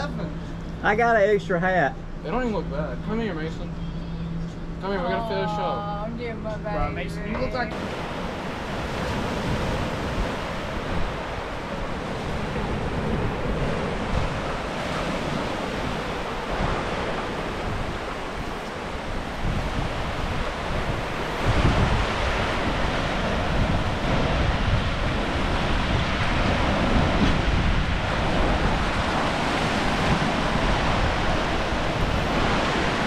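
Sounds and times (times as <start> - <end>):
wind buffeting microphone: 4.3 - 33.0
ocean surf washing up beach: 6.8 - 33.0.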